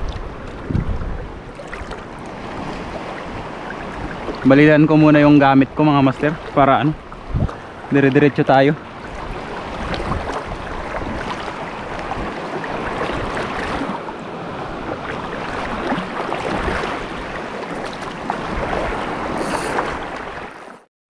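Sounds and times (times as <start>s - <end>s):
waves rushing: 0.0s - 20.8s
wind: 0.0s - 20.9s.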